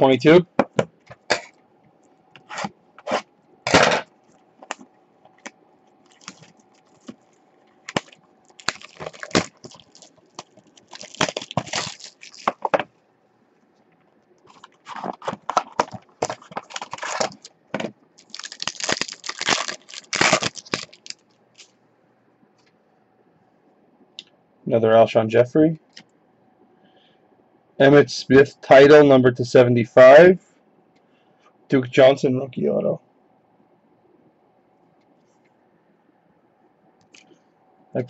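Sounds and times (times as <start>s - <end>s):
plastic wrapping crinkling: 5.4s - 12.9s, 14.4s - 17.6s, 18.2s - 21.7s.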